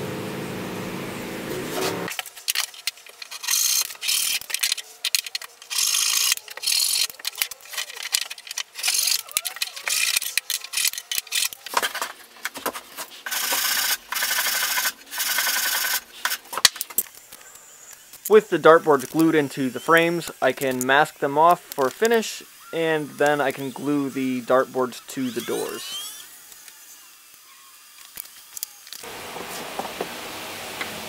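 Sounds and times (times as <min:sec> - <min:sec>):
steady machine hum: 0:00.0 - 0:02.1
sandpaper rubbing wood: 0:08.8 - 0:16.5, 0:18.3 - 0:26.4
hand saw cutting wood: 0:18.3 - 0:27.1.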